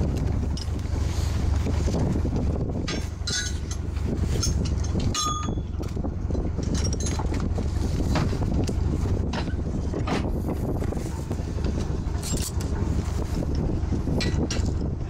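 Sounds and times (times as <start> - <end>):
boat engine rumbling: 0.0 - 15.0
wind on microphone: 0.0 - 15.0
chain and rigging clinking: 0.4 - 1.1, 2.8 - 7.5, 12.1 - 13.4.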